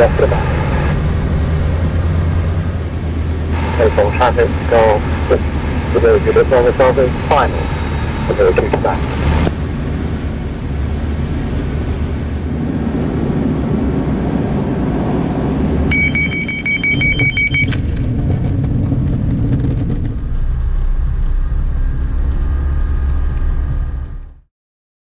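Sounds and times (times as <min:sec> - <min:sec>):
rapid beeping warning tone: 0:00.0 - 0:01.0, 0:03.6 - 0:09.7, 0:15.9 - 0:17.7
airflow in cockpit: 0:00.0 - 0:24.3
aircraft diesel engine: 0:00.0 - 0:24.4.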